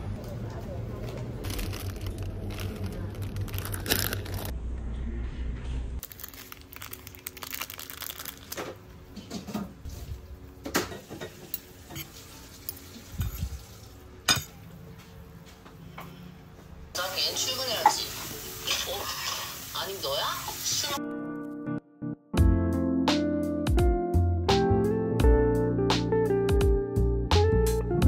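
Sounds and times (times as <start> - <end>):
low hum of supermarket ambience: 0.0 - 17.7
foil sachet crinkling and tearing: 1.4 - 4.5, 6.0 - 8.8.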